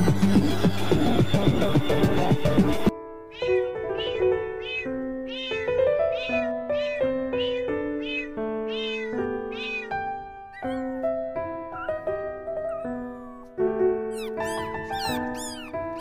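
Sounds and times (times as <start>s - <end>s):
cat meows set to music: 3.2s - 11.1s, 14.1s - 16.0s.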